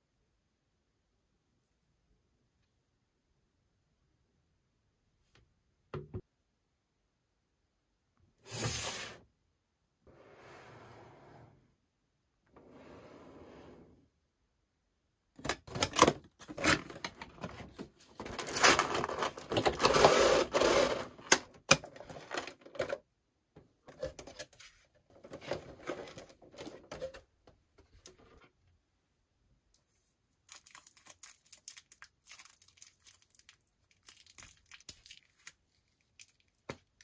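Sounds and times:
cardboard and plastic packaging rustling: 15.6s - 23.0s, 23.9s - 27.2s.

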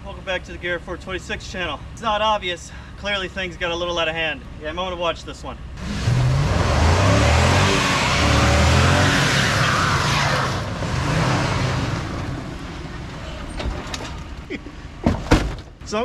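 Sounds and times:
truck engine revving: 5.8s - 15.0s.

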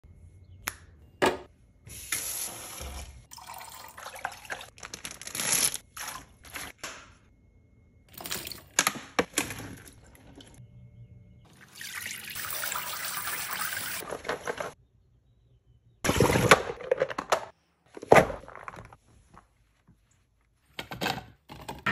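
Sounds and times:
faucet running into sink: 11.6s - 14.0s.

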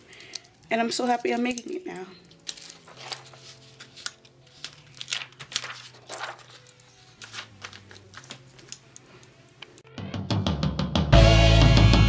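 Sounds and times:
paper rustling and crinkling: 2.3s - 9.5s.

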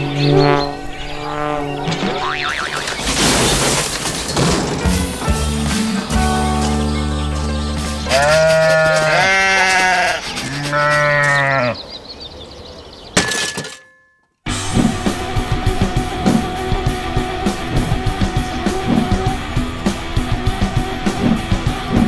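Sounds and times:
rock music with guitar and drums: 4.8s - 9.2s, 14.5s - 22.0s
long bleats: 8.1s - 11.8s.

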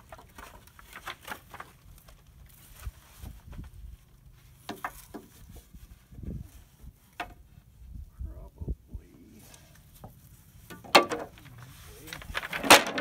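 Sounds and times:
wooden strips knocking: 10.7s - 11.5s, 12.3s - 13.0s.

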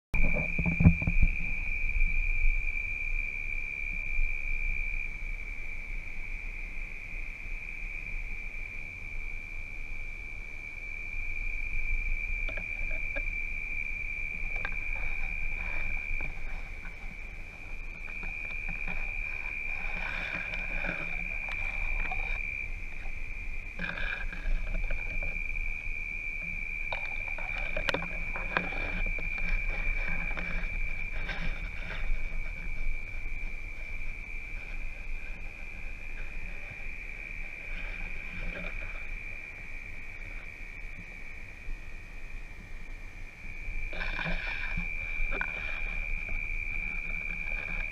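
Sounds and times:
night insects chorus: 0.2s - 47.9s
rustling: 11.7s - 41.1s, 43.8s - 47.9s.

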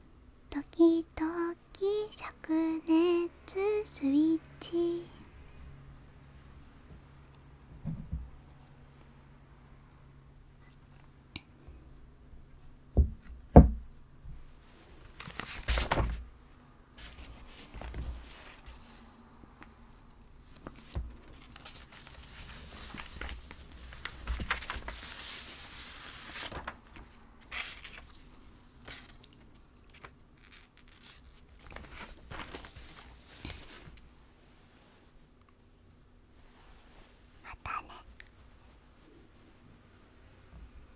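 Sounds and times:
paper shuffling and rustling: 14.6s - 16.3s, 17.0s - 19.7s, 20.4s - 34.2s.

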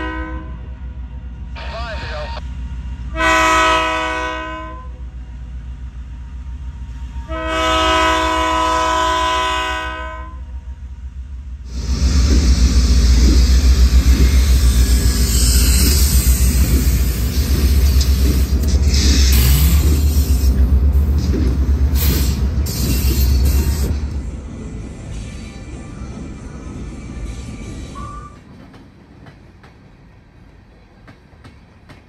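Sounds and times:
train horn blast: 0.0s - 0.7s, 3.0s - 5.1s, 7.0s - 10.6s.

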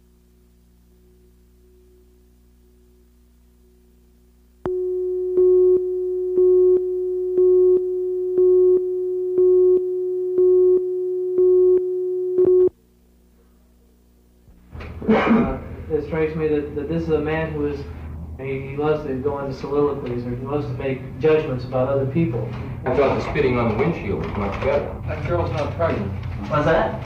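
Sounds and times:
faint steady hum: 0.0s - 27.0s
countdown beeps: 4.7s - 12.7s
steady electronic tone: 4.7s - 12.8s.

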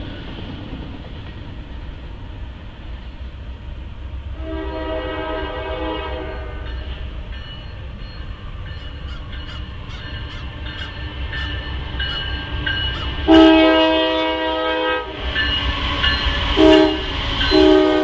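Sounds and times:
locomotive air horn blast: 4.4s - 6.8s, 13.3s - 15.3s, 16.6s - 18.0s.

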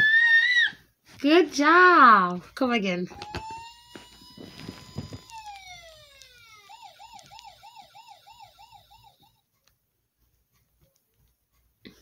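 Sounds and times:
electronic ambulance siren: 3.1s - 9.4s.

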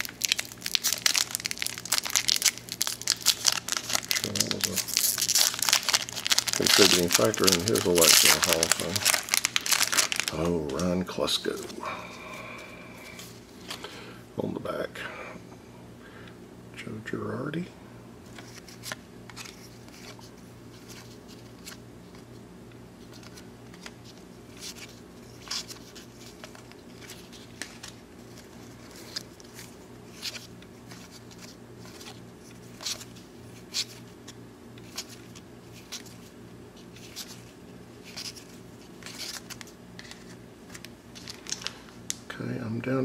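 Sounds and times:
steady low hum: 0.0s - 43.0s
cards being flipped: 18.3s - 22.2s, 23.0s - 42.2s.

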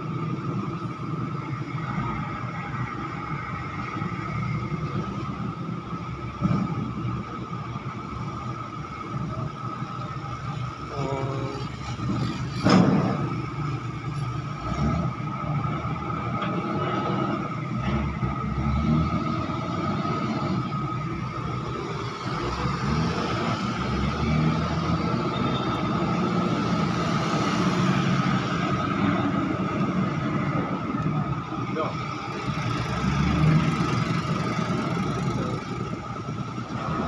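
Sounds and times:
diesel engines running: 0.0s - 37.0s
loud metal clank: 12.6s - 13.4s.

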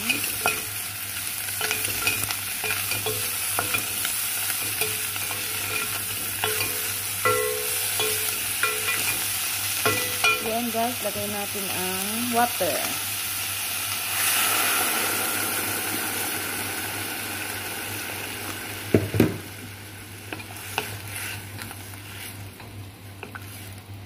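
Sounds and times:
water hissing in hot pot: 11.8s - 22.4s.

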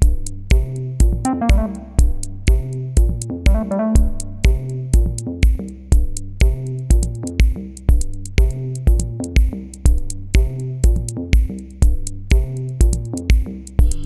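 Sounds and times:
drum machine beat: 0.0s - 14.0s
sustained synthesizer notes: 1.2s - 2.3s.

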